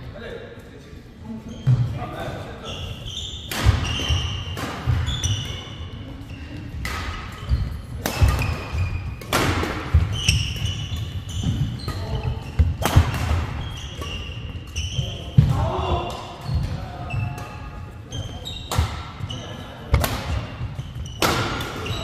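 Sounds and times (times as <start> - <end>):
court shoes squeaking: 1.2 - 22.0
rackets striking shuttlecock: 3.5 - 5.6, 6.8 - 17.7, 19.9 - 21.9.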